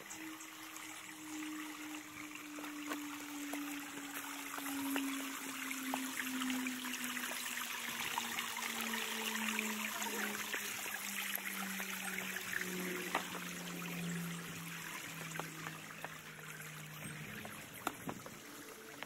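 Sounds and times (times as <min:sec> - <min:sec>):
stream trickling over rocks: 0:00.0 - 0:19.0.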